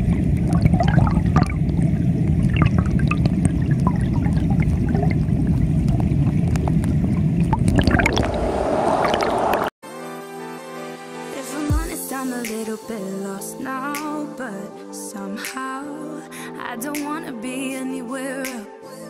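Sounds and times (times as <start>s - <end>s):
underwater stream rushing: 0.0s - 9.7s
small underwater clicks: 5.5s - 7.9s
music: 9.8s - 19.0s.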